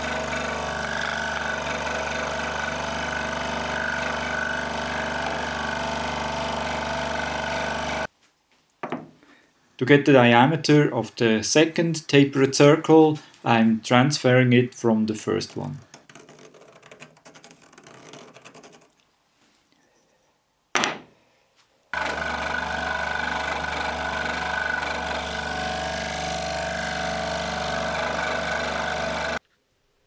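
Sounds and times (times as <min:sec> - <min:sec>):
scroll saw cutting wood: 0:00.0 - 0:08.1, 0:15.3 - 0:18.8, 0:22.0 - 0:29.4
pencil scratching on wood: 0:15.5 - 0:19.0.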